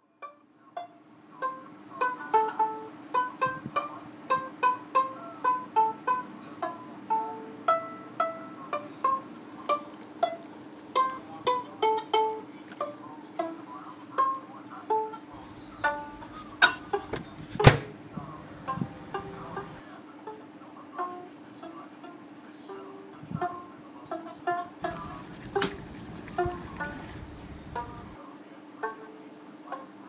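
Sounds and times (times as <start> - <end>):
plucked string melody: 0.0 - 20.4, 23.4 - 28.2
faint steady low tone: 17.9 - 19.8.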